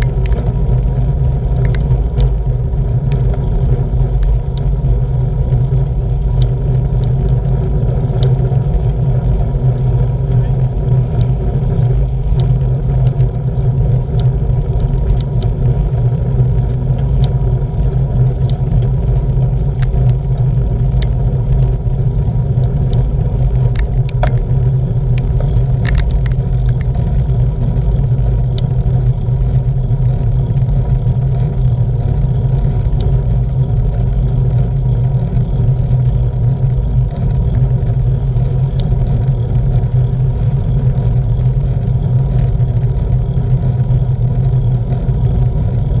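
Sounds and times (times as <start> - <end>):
tyre and road noise: 0.0 - 46.0
faint clicks: 1.6 - 2.4.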